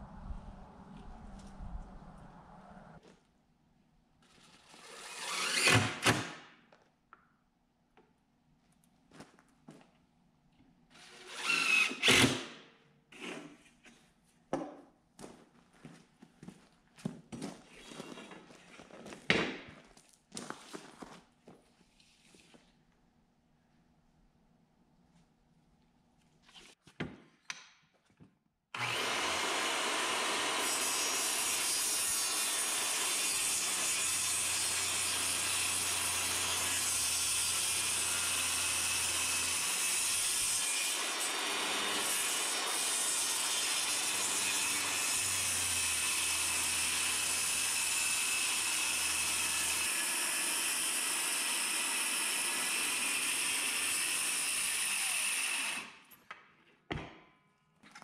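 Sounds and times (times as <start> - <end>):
circular saw cutting plywood: 4.3 - 6.2, 28.8 - 55.9.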